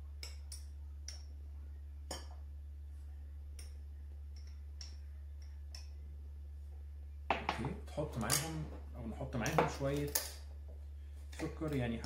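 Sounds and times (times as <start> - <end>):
low hum: 0.0 - 9.5.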